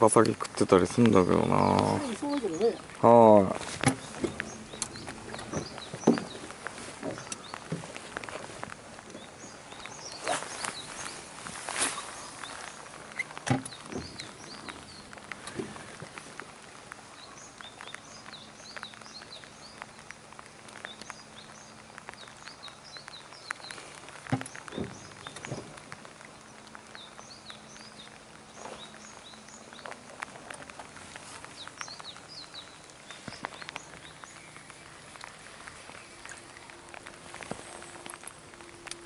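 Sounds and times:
rain pattering on water and boat: 0.0 - 39.0
small birds chirping: 0.0 - 39.0.

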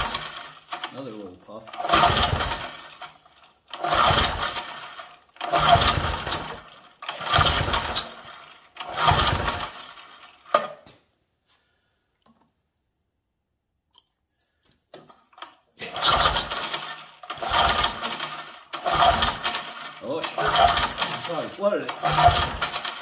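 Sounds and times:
small engine pull-starter cranking: 0.0 - 10.7, 15.4 - 23.0.

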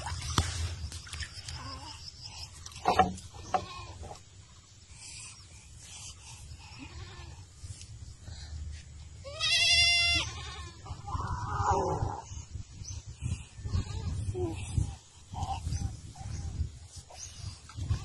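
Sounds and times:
goat bleating: 9.3 - 10.8.

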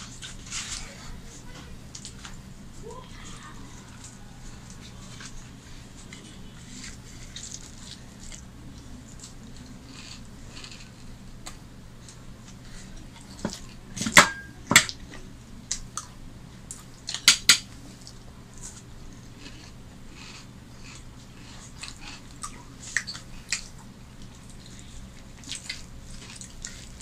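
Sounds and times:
tableware clinking: 14.2 - 14.8.

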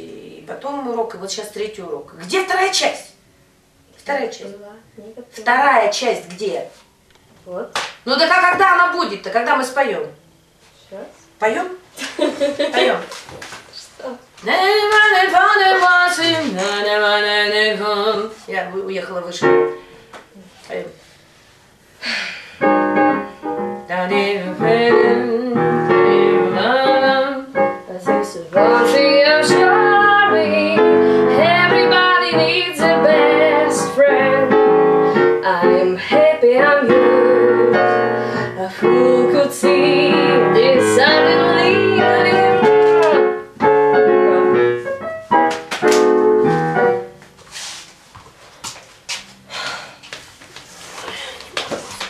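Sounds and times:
woman singing jazz: 14.0 - 19.8, 23.8 - 43.4
piano accompaniment: 14.5 - 20.4, 22.6 - 48.1.

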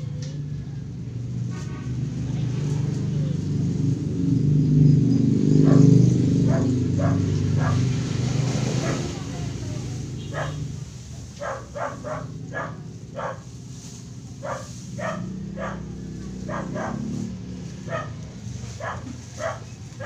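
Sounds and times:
dog barking: 5.6 - 10.8, 11.4 - 13.5, 14.4 - 20.0.

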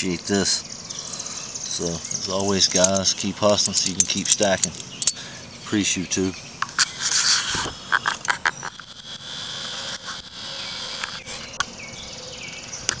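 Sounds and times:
insects buzzing: 0.0 - 13.0.

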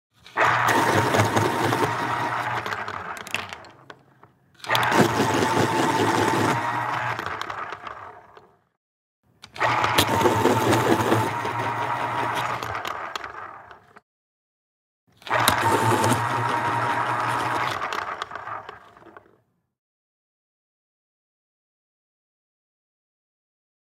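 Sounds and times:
pencil sharpener grinding: 0.2 - 8.5, 9.4 - 13.8, 15.2 - 19.3.

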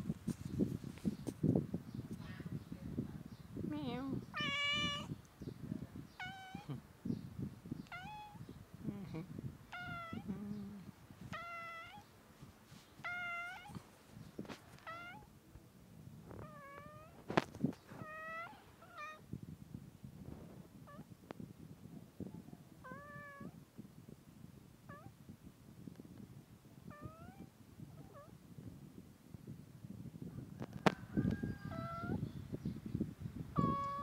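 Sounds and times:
cat meowing: 4.3 - 5.2, 6.2 - 6.8, 7.9 - 8.4, 9.7 - 10.3, 11.3 - 12.1, 13.0 - 13.8, 14.8 - 15.3, 16.4 - 17.2, 18.0 - 19.2, 22.8 - 23.6, 26.9 - 27.5, 33.6 - 34.0.

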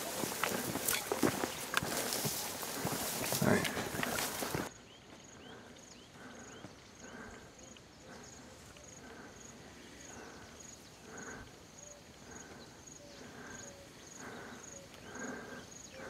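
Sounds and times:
footsteps through tall grass: 0.0 - 5.2
high insect chirp: 0.0 - 16.0.

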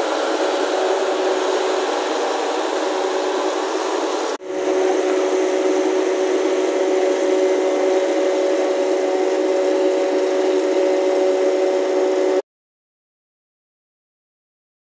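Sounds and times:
mist cannon spraying: 0.0 - 11.5.

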